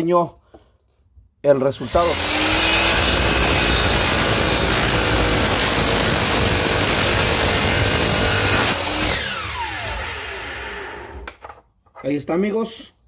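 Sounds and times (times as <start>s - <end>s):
miter saw cutting wood: 1.8s - 11.3s
saw motor winding down: 1.8s - 11.3s.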